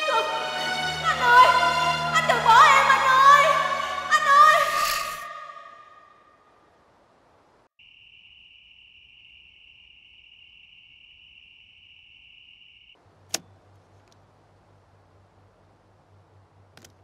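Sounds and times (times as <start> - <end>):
insects trilling: 7.8 - 13.0
sharp click: 13.2 - 14.2.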